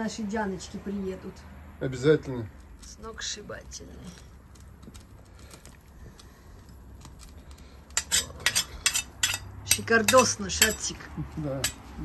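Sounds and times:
metal ladle clinking against pan: 8.0 - 10.9.

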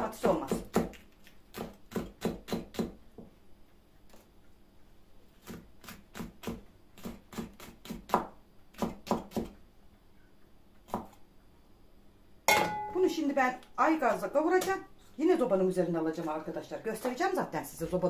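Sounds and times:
knife chopping vegetables: 0.2 - 3.0, 5.4 - 9.6, 10.8 - 11.2.

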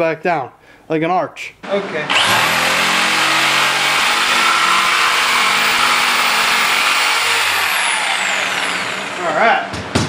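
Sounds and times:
jigsaw cutting wood: 2.0 - 9.5.

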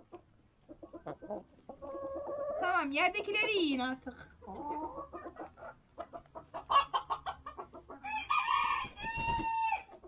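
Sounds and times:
chickens clucking: 0.0 - 10.0
rooster crowing: 8.0 - 9.9.

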